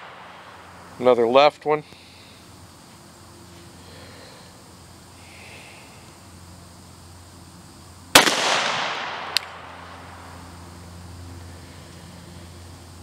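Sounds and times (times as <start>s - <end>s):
pistol shot with echo: 8.1s - 9.8s.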